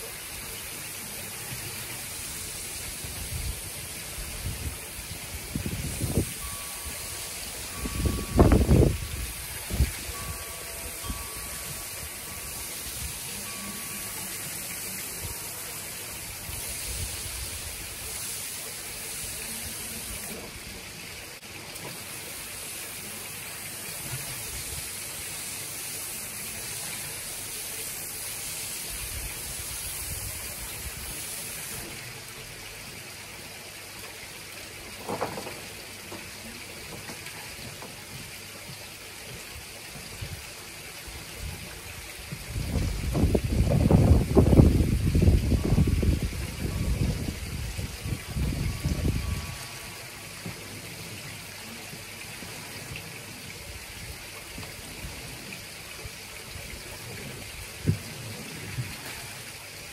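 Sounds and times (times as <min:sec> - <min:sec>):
water jet spraying: 0:00.0 - 0:32.6, 0:40.6 - 0:53.4.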